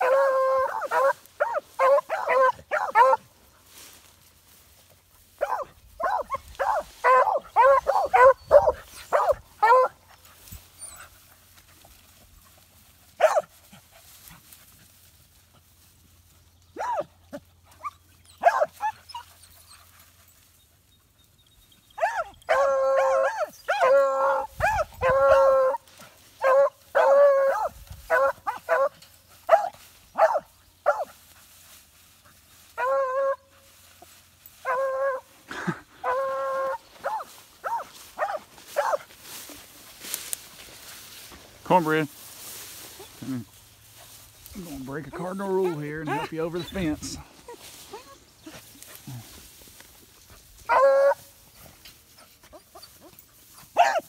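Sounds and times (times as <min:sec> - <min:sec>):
hounds barking: 0:00.0 - 0:03.3, 0:05.4 - 0:10.0, 0:13.2 - 0:13.6, 0:16.8 - 0:17.1, 0:17.7 - 0:20.0, 0:22.0 - 0:31.2, 0:32.8 - 0:33.5, 0:34.6 - 0:35.3, 0:36.0 - 0:39.2, 0:45.0 - 0:49.1, 0:50.6 - 0:51.3, 0:52.3 - 0:54.0.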